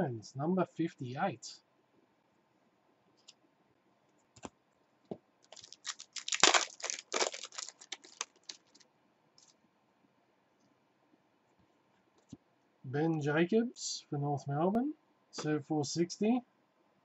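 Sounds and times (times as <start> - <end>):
foil wrapper tearing and crinkling: 5.5 - 8.8.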